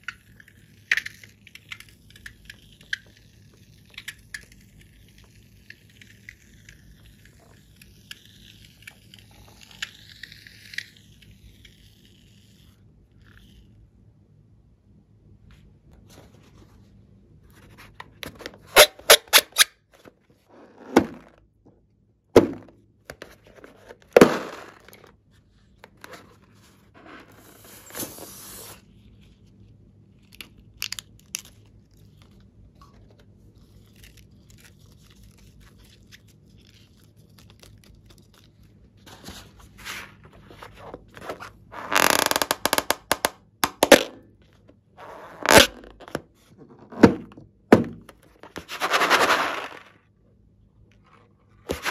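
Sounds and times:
balloon rubber crackling: 40.9s - 44.2s, 45.0s - 46.2s.

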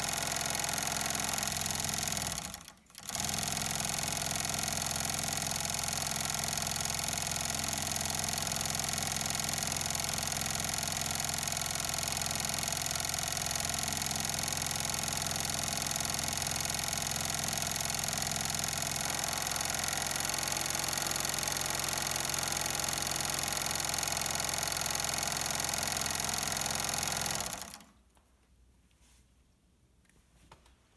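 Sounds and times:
sewing machine running: 0.0s - 28.0s.

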